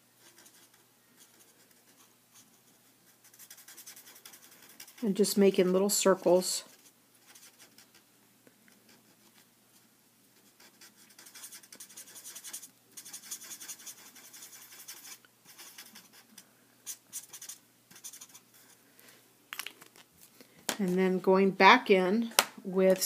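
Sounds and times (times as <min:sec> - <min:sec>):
marker nib scratching on paper: 0:00.2 - 0:05.7, 0:06.6 - 0:08.1, 0:10.4 - 0:18.8.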